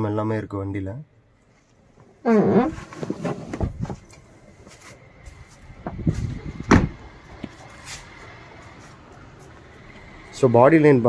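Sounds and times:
car door thud: 6.6s - 7.0s.

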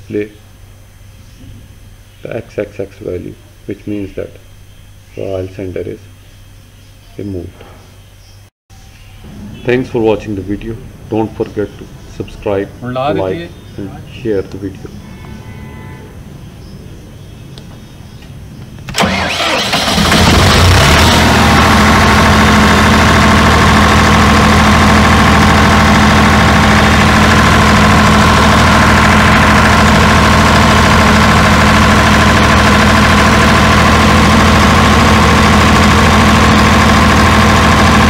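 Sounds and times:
diesel generator engine running: 9.2s - 15.0s, 16.4s - 38.0s
engine starter cranking: 18.9s - 38.0s.

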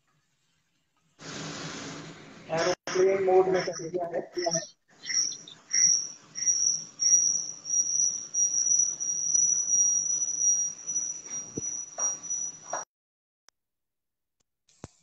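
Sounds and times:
high thin whistling tone: 3.0s - 12.9s.

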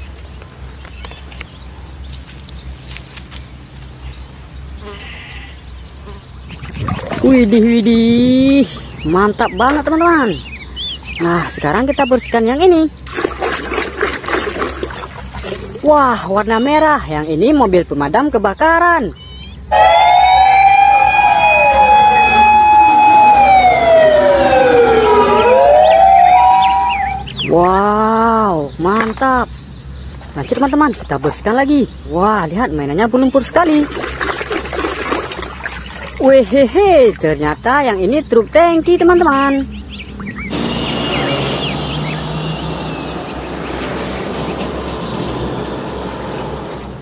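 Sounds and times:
tyre and road noise: 0.0s - 11.6s, 12.2s - 17.8s, 19.6s - 47.0s
bird chirps: 0.0s - 45.7s
fire engine siren wailing: 19.7s - 27.4s.

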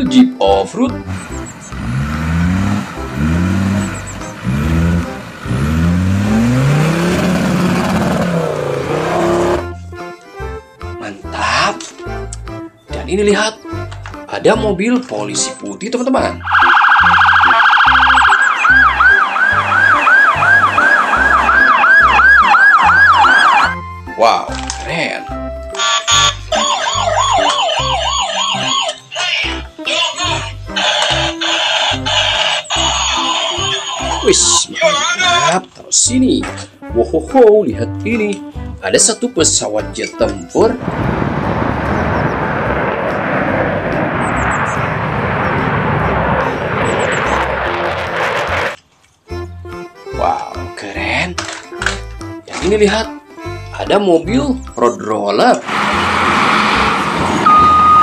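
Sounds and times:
fighter jet roaring: 1.1s - 9.7s, 16.5s - 23.7s, 40.8s - 48.8s, 55.6s - 58.0s
police siren yelping: 16.4s - 23.9s, 25.7s - 29.1s, 30.7s - 34.2s, 57.4s - 58.0s.

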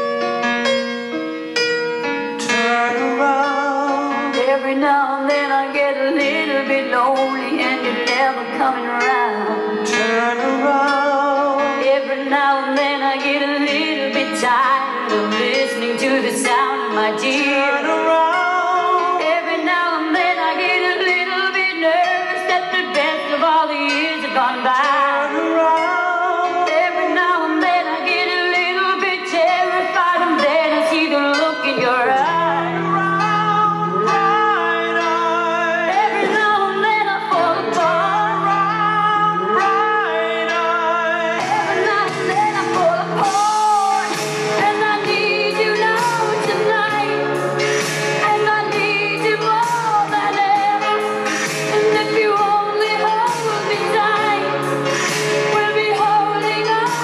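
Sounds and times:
pop song with vocals: 0.0s - 57.0s.

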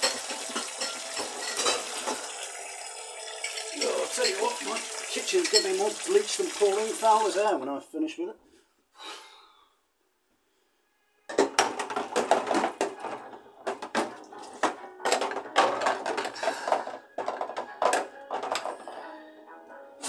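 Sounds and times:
dishes and glassware clinking: 0.0s - 2.4s, 3.2s - 6.1s, 11.3s - 19.0s
music: 0.0s - 6.9s, 10.8s - 20.0s.

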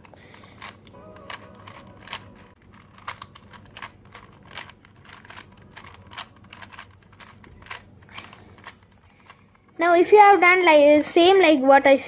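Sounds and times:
puzzle cube layers clicking: 0.0s - 9.4s.

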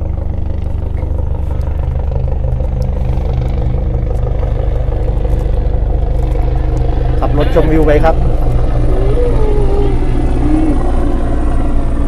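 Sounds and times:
helicopter rotor thrum: 0.0s - 12.0s.

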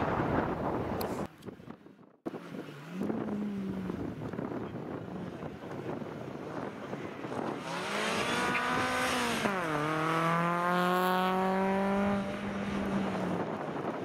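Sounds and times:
rally car engine revving: 7.2s - 13.9s.

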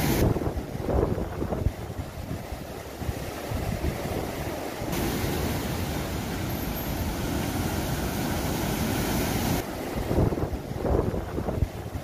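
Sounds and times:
wind buffeting microphone: 0.0s - 6.3s, 9.3s - 12.0s
surf breaking on sandy bank: 0.0s - 12.0s.

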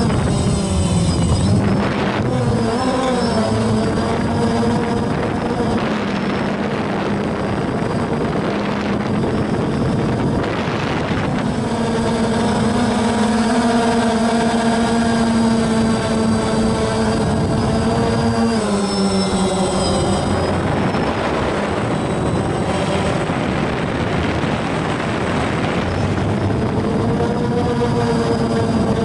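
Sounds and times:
drone motors whining: 0.0s - 29.0s
wind rushing over microphone: 0.0s - 29.0s.

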